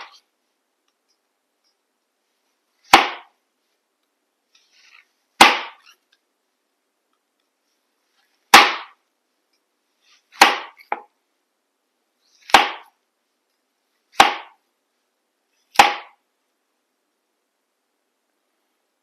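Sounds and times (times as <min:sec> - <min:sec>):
knife chopping onion on board: 0:02.9 - 0:03.3, 0:08.5 - 0:08.9, 0:10.4 - 0:11.0, 0:12.5 - 0:12.9, 0:14.2 - 0:14.6, 0:15.8 - 0:16.1.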